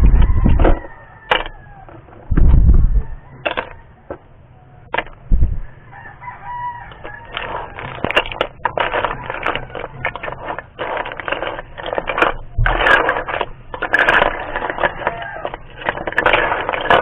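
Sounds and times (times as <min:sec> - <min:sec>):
rooster crowing: 0:00.0 - 0:02.1, 0:03.0 - 0:04.9, 0:05.6 - 0:08.0, 0:14.4 - 0:15.7
metal ladle scraping shells in a wok: 0:06.9 - 0:17.0.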